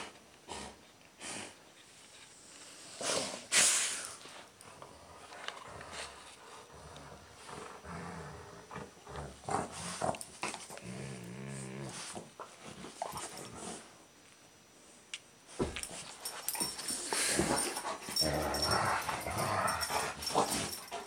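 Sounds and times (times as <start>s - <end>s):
dogs play-growling: 4.1s - 14.0s, 15.8s - 21.0s
dogs breathing: 16.2s - 21.0s.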